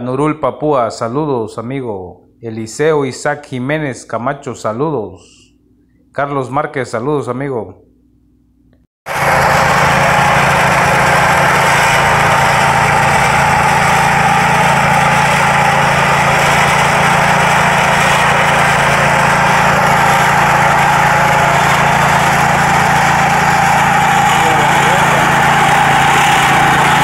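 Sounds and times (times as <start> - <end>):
small gasoline engine running: 9.1 - 27.0.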